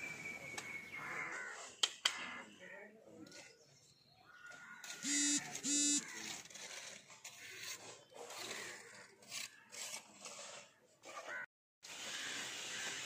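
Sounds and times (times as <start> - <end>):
faint scraping and rubbing: 6.0 - 11.4.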